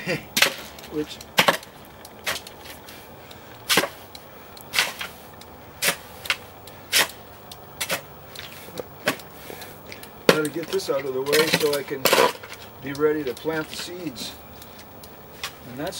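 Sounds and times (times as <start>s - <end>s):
shovel chopping wet soil: 0.4s - 2.8s, 3.6s - 4.0s, 4.7s - 5.2s, 5.8s - 7.2s, 7.8s - 9.2s, 10.3s - 12.6s.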